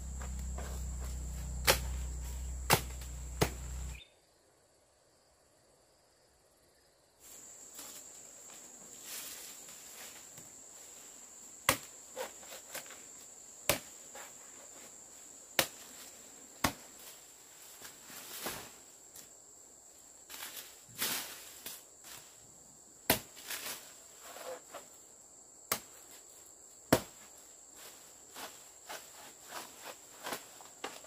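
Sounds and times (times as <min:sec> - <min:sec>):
high-pitched insect drone: 0:00.0 - 0:04.1
sharp knocks or chops: 0:00.1 - 0:03.9.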